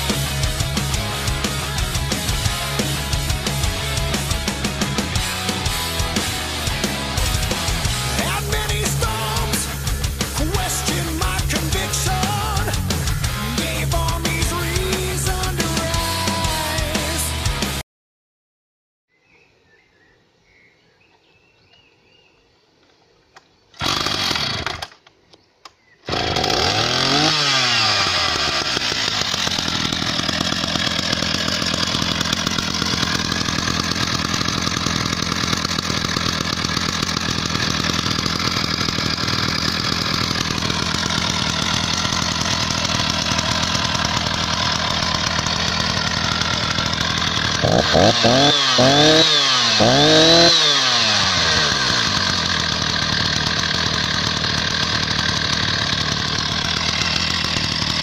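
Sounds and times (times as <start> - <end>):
chainsaw pull cord: 0.0 - 17.2, 23.7 - 25.2, 26.1 - 58.0
chainsaw engine running and revving: 0.0 - 17.8, 23.8 - 24.9, 26.1 - 58.0.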